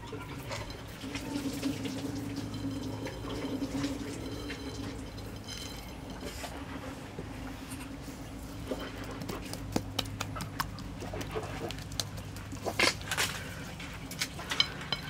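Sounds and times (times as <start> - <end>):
steady low hum: 0.0 - 15.0
salt sprinkling patter: 8.4 - 13.1
hands slapping wet skin: 9.2 - 12.8.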